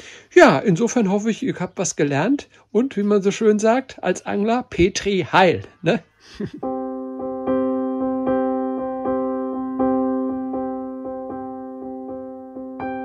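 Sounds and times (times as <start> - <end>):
keyboard playing repeated notes: 6.6 - 13.0.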